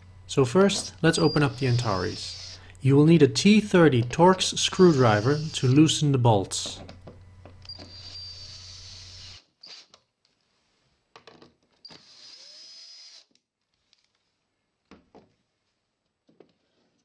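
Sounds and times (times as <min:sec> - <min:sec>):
drill motor whine: 0:00.0 - 0:06.9, 0:07.6 - 0:09.9, 0:11.9 - 0:13.3.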